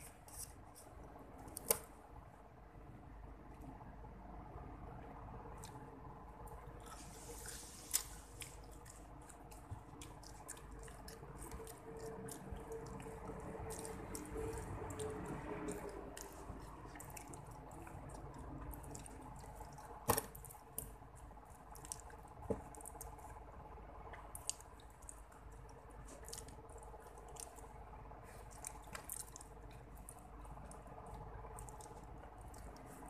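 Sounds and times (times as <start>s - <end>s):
wet chewing and mouth clicks: 6.5s - 23.4s, 24.1s - 33.0s.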